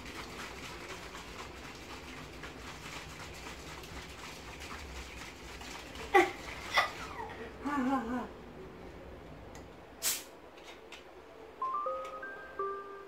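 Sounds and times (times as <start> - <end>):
soda sloshing in plastic bottle: 0.0 - 7.3.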